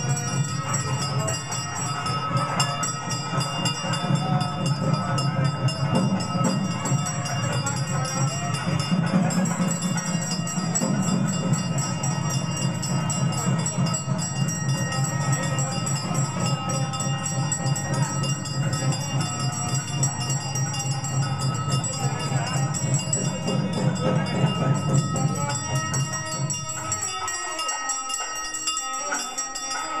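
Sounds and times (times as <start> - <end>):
bells ringing: 0.0 - 30.0
small brass hand cymbals: 0.0 - 30.0.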